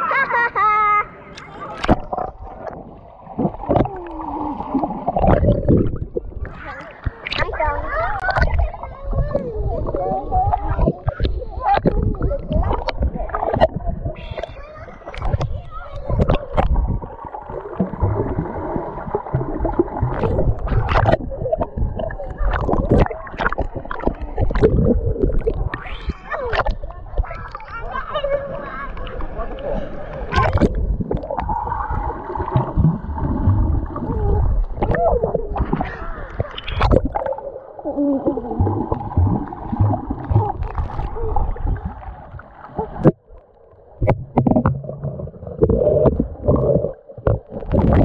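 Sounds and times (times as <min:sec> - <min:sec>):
water splashing: 0:01.2 - 0:48.0
muffled underwater bubbling: 0:01.4 - 0:48.0
low thumps: 0:38.6 - 0:43.3, 0:44.0 - 0:48.0.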